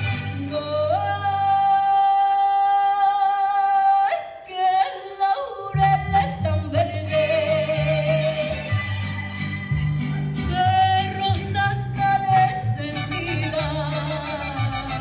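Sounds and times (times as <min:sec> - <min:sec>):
mariachi band playing: 0:00.0 - 0:02.1, 0:05.8 - 0:15.0.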